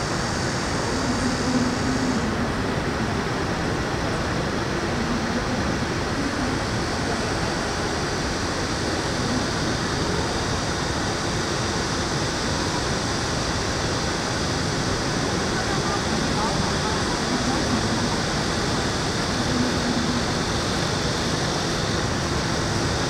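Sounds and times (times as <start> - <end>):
building ventilation: 0.0 - 23.0.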